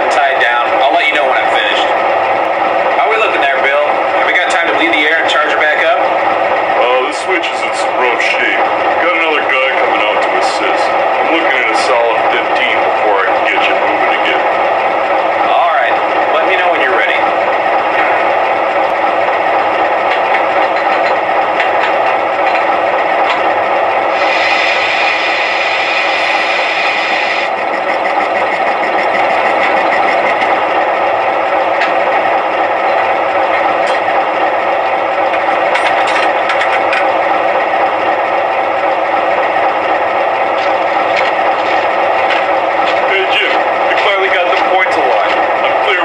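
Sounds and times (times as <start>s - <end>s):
hiss: 24.2s - 27.5s.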